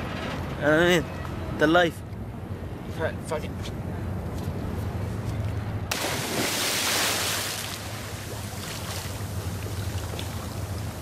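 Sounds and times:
big splash into water: 0:05.9 - 0:09.4
rush of spray: 0:05.9 - 0:11.0.

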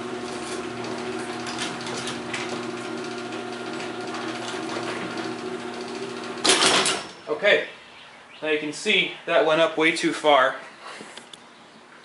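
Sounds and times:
garage door opener motor hum: 0:00.0 - 0:07.3.

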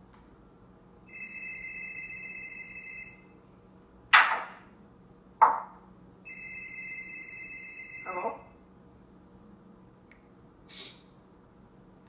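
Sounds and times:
parrot imitating telephone ring: 0:06.3 - 0:08.6.

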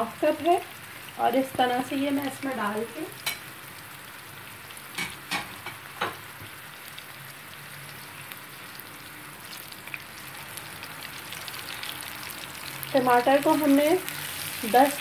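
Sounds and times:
paste sizzling in hot oil: 0:00.0 - 0:15.0
spatula stirring in pan: 0:13.9 - 0:15.0.

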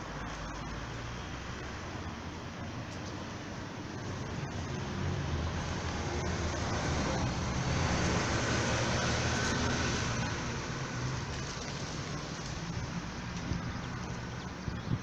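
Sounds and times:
car passing by: 0:04.0 - 0:14.4.

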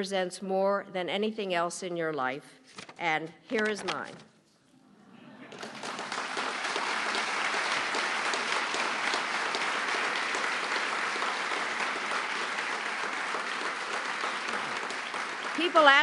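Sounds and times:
audience applauding: 0:05.5 - 0:16.0.

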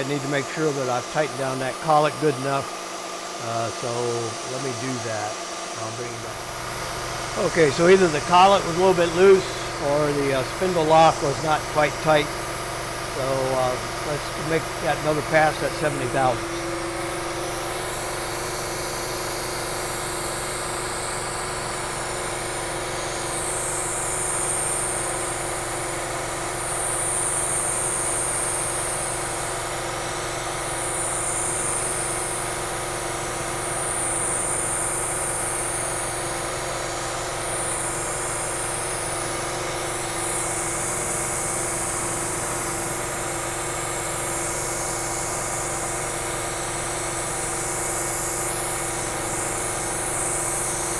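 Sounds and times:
milling machine spindle running: 0:00.0 - 0:50.9.

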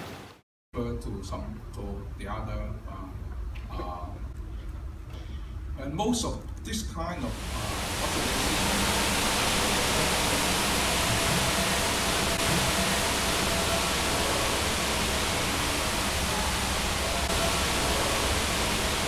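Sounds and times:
room noise hiss: 0:00.0 - 0:19.0.

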